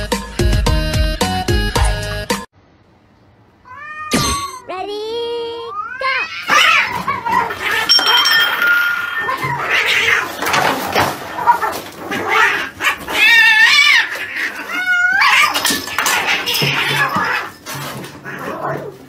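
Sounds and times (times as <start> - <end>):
cats yowling: 5.6 - 19.0
knocks and scuffling: 6.5 - 13.4.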